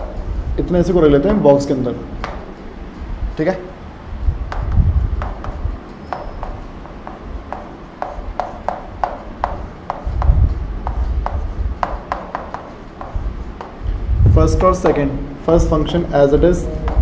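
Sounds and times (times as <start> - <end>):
chalk writing on chalkboard: 4.5 - 13.8.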